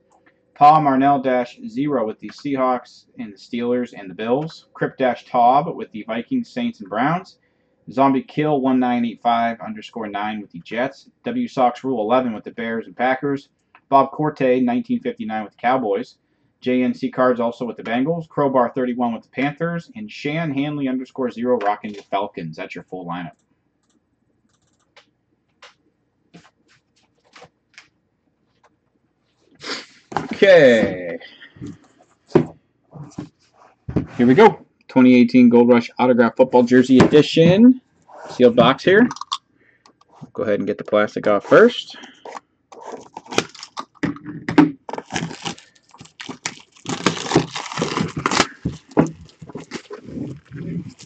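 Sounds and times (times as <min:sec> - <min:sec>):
faint clicks and taps: 0:23.3 - 0:29.0
plastic shrink-wrap crinkling and tearing: 0:42.8 - 0:43.9, 0:44.9 - 0:51.0.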